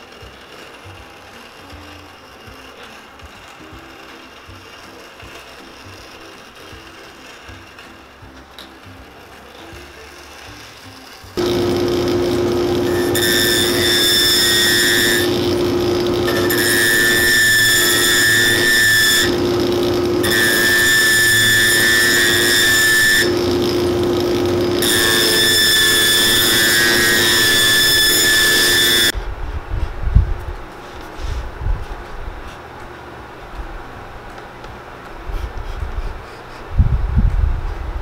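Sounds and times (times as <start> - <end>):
finishing machine humming: 0.0 - 29.2
high whine of leather trimming: 10.2 - 29.2.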